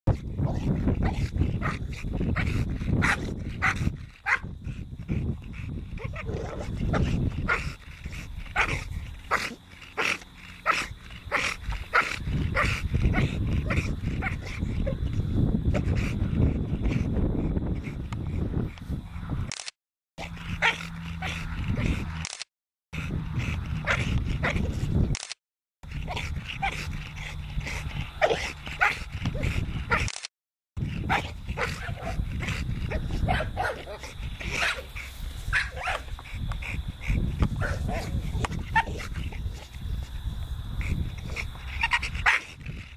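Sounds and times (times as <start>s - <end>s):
dog panting: 0.1s - 19.3s, 20.2s - 22.4s, 23.0s - 30.2s, 30.8s - 42.9s
wind rumble on microphone: 0.1s - 22.2s, 23.0s - 30.1s, 30.8s - 42.9s
dog whining and yipping: 41.7s - 42.5s.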